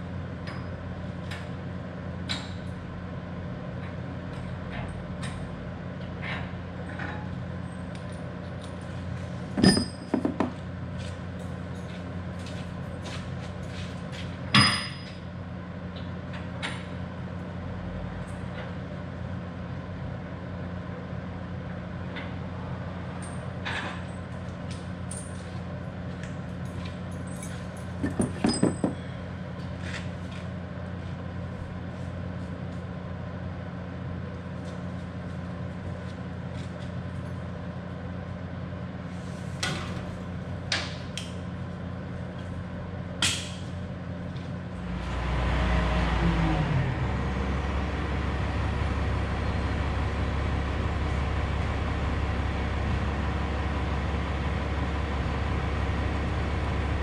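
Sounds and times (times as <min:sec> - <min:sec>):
metal latch clanks and knocks: 0:28.0 - 0:29.0
truck engine idling: 0:43.8 - 0:57.0.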